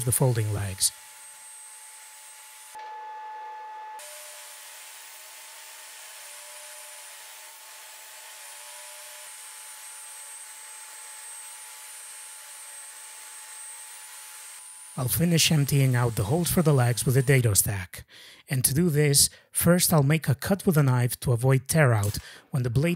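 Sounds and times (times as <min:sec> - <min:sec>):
table saw cutting plywood: 0:00.0 - 0:17.7.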